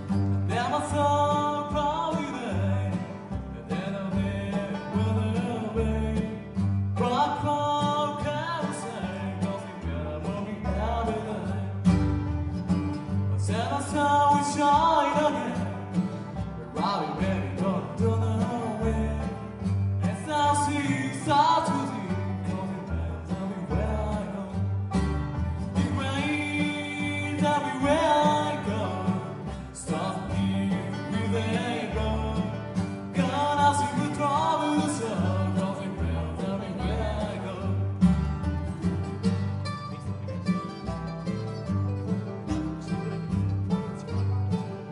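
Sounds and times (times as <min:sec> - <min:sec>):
acoustic guitar: 0:00.0 - 0:44.9
banjo: 0:00.0 - 0:44.9
mandolin: 0:00.0 - 0:44.9
upright bass plucking: 0:00.0 - 0:44.9
person singing: 0:00.4 - 0:12.1, 0:13.2 - 0:16.1, 0:16.7 - 0:25.0, 0:25.7 - 0:38.2.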